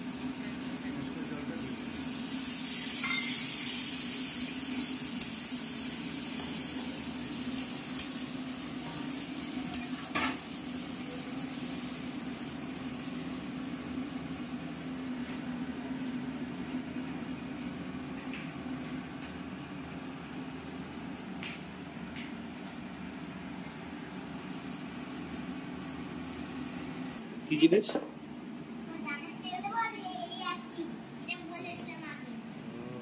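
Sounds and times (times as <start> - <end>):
food sizzling in a pan: 0.0 - 27.2
steady low hum: 4.0 - 33.0.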